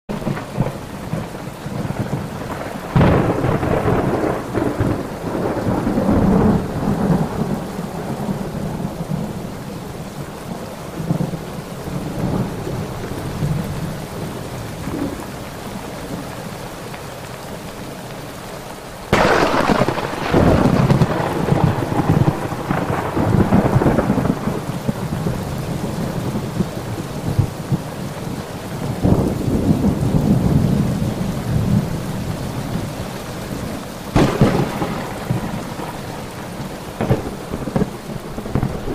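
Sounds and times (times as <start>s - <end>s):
thunder rumbling: 0.1s - 10.3s, 19.1s - 38.9s
steady rain: 0.1s - 38.9s.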